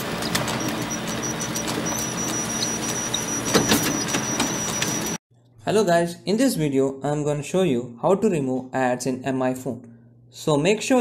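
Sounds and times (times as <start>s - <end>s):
digital clicks: 0.5s - 5.2s.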